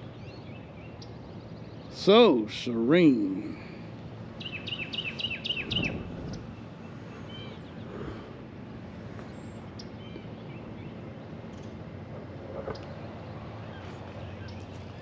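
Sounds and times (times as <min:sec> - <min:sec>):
steady outdoor hiss: 0:00.0 - 0:15.0
songbird whistling: 0:04.4 - 0:06.0, 0:07.2 - 0:07.9
faint bird chirps: 0:04.4 - 0:08.3.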